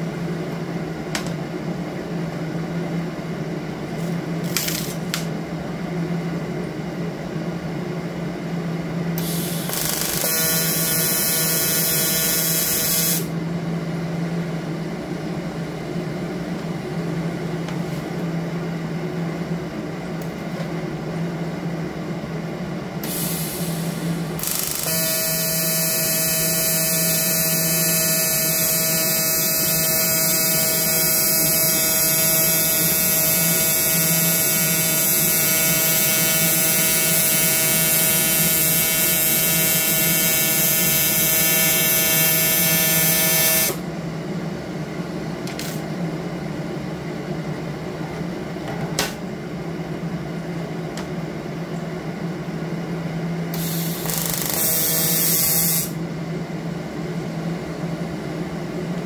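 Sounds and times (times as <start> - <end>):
welder low hum: 0.0 - 6.4, 8.1 - 46.4, 50.4 - 56.1
welding arc buzzing: 4.0 - 5.3, 9.2 - 13.4, 23.0 - 43.8, 53.5 - 56.0.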